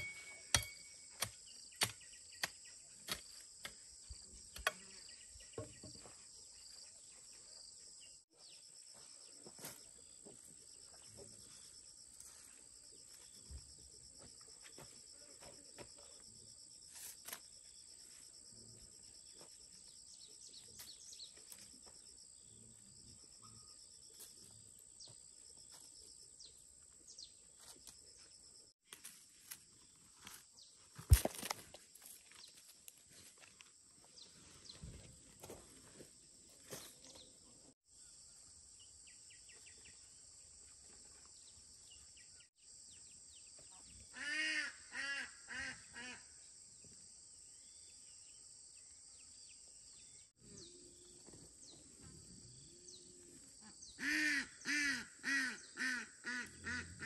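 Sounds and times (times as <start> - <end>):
hoe chopping into soil: 0.0 - 3.8, 31.0 - 31.8.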